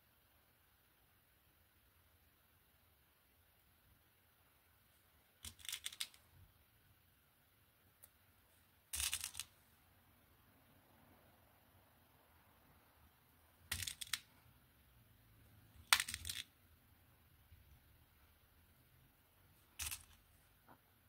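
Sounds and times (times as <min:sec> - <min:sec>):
beads clicking: 0:05.4 - 0:06.2, 0:08.9 - 0:09.5, 0:13.6 - 0:14.5, 0:15.7 - 0:16.6, 0:19.7 - 0:20.4.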